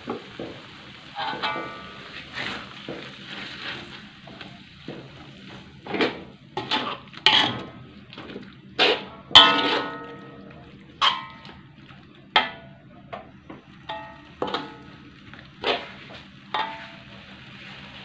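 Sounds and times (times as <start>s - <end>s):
faint frying sizzle: 0.0s - 18.0s
metal spatula scraping a wok: 1.2s - 4.4s, 5.8s - 7.7s, 8.8s - 10.0s, 15.6s - 18.0s.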